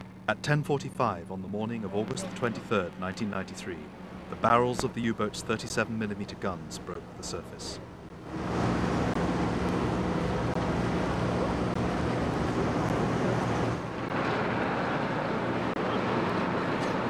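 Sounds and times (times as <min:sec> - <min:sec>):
ship engines humming: 0:00.0 - 0:17.0.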